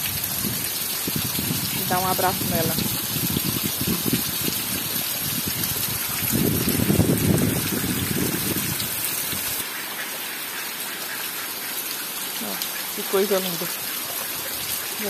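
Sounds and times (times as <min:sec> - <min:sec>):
heavy rain falling: 0:00.0 - 0:15.0
runoff water gushing and splashing: 0:00.0 - 0:15.0.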